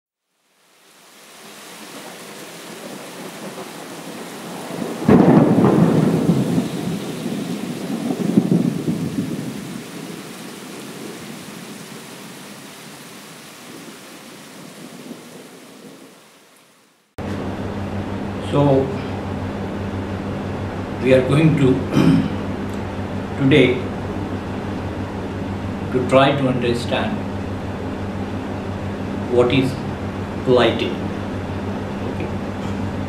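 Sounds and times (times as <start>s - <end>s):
rain hiss: 0.2s - 32.8s
thunder rolling: 2.7s - 12.4s.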